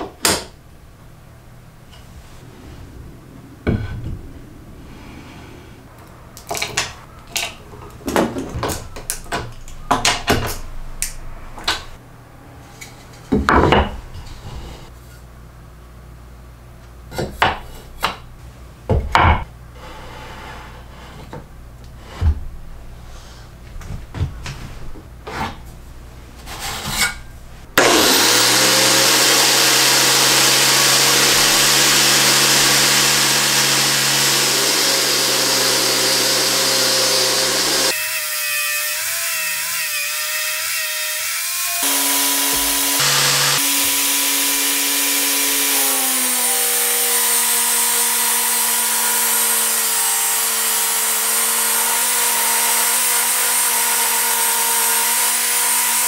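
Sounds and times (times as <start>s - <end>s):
angle grinder sanding wood: 27.8s - 56.0s.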